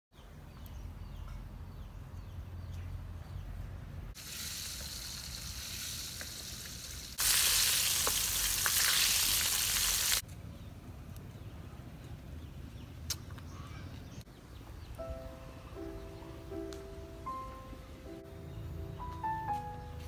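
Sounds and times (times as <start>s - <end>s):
fish sizzling in hot oil: 4.2s - 10.2s.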